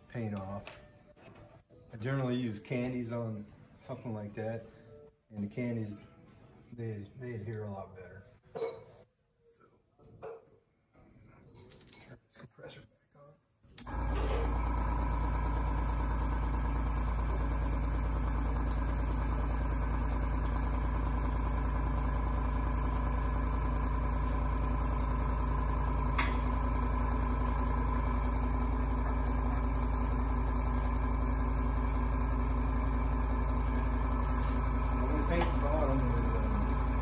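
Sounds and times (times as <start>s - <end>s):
air compressor humming: 13.8s - 37.0s.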